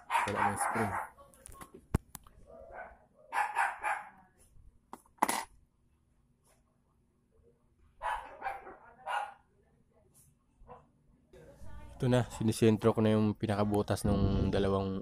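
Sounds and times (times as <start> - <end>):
dog barking: 0.0 - 1.2, 2.5 - 4.2, 8.0 - 9.5.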